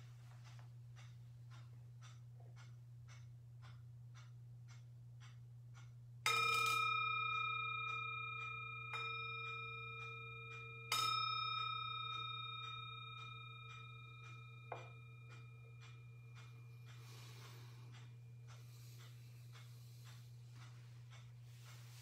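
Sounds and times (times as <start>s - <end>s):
singing bowl ringing: 6.2s - 19.3s.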